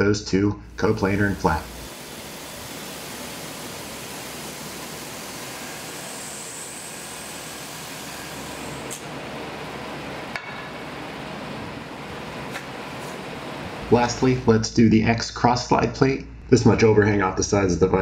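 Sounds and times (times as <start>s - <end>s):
high whine: 0.6s - 17.6s
milling machine cutting hiss: 0.7s - 14.6s.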